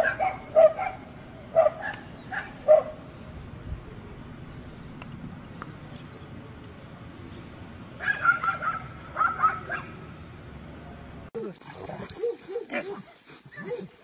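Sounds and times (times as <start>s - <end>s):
dogs barking and yelping: 0.0s - 3.1s, 8.0s - 10.0s, 11.7s - 14.0s.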